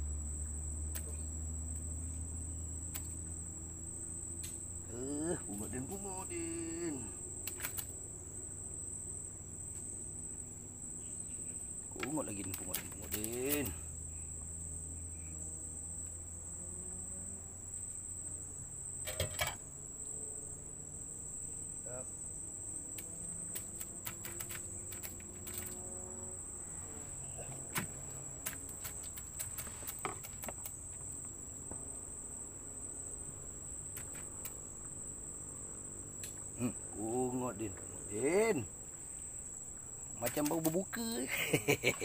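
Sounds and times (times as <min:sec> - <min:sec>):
insect chorus trilling: 0:00.0 - 0:42.0.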